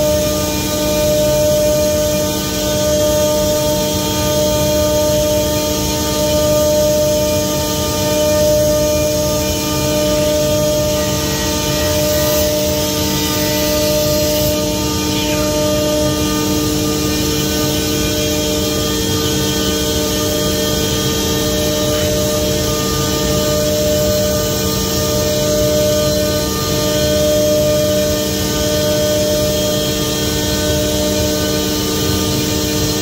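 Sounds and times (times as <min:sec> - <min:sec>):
router machine droning: 0:00.0 - 0:33.0.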